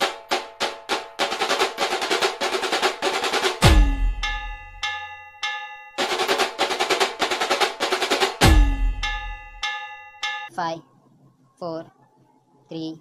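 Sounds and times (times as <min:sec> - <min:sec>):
snare drum roll: 0:00.0 - 0:04.7, 0:06.0 - 0:09.3
ringing bell-like notes: 0:03.6 - 0:06.5, 0:08.4 - 0:10.6.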